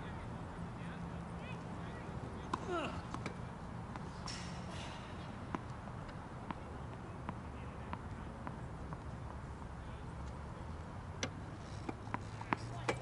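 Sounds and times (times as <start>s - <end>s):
tennis ball on hard court: 2.4s - 10.4s, 11.2s - 13.0s.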